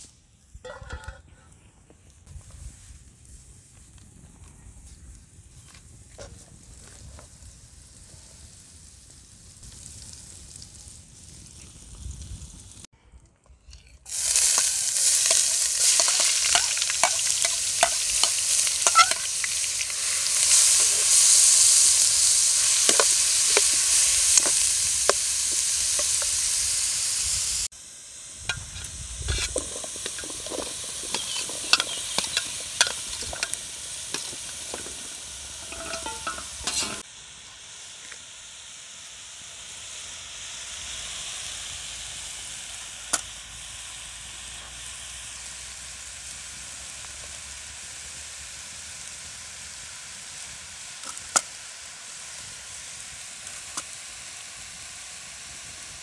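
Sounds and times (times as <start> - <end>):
food sizzling in a pot: 5.5 - 12.9, 13.8 - 56.0
metal spoon clinking and scraping: 13.7 - 21.5, 28.5 - 37.0.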